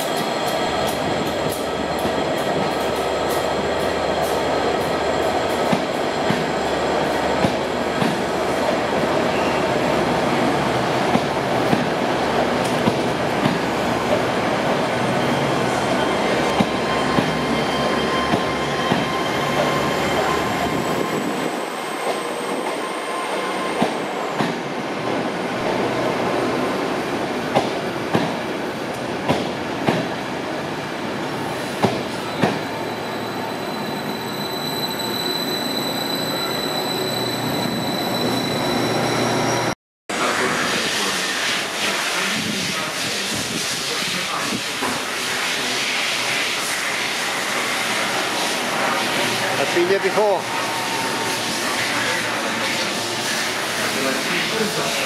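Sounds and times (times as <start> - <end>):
train coaches rumbling past: 0.0 - 55.0
high wheel squeal: 14.8 - 24.4, 31.5 - 39.8, 48.9 - 55.0.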